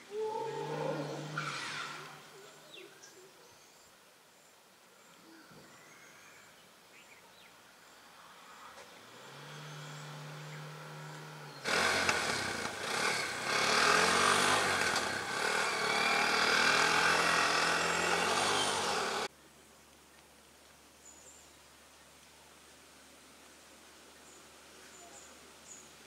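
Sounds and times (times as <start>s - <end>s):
small engine running: 9.1s - 19.3s.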